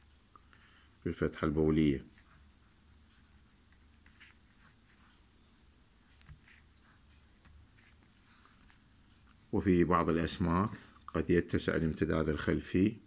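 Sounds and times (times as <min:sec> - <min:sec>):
pen scratching on paper: 0:02.1 - 0:05.3, 0:06.0 - 0:08.8.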